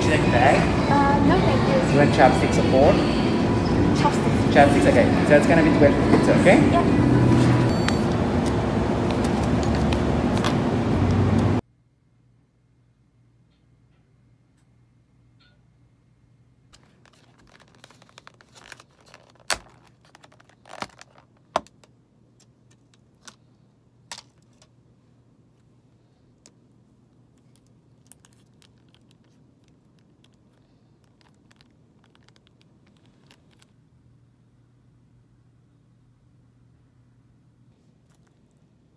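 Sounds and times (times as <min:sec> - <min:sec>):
low steady hum: 0:00.0 - 0:38.9
packet tearing open: 0:16.8 - 0:21.8, 0:27.4 - 0:33.7
wrappers rustling: 0:16.8 - 0:21.8, 0:27.4 - 0:33.7
plastic lid snapping and crackling: 0:17.0 - 0:21.9.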